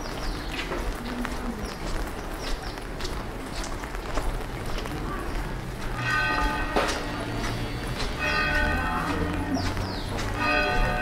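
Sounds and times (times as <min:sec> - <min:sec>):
church bell tolling: 0:05.9 - 0:11.0.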